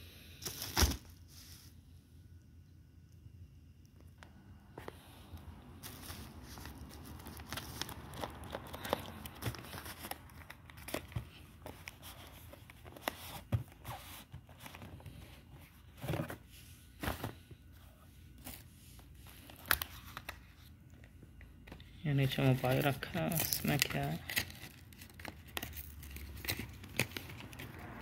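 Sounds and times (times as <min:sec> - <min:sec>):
rustling of paper and bubble wrap: 0:05.7 - 0:20.8, 0:22.0 - 0:28.0.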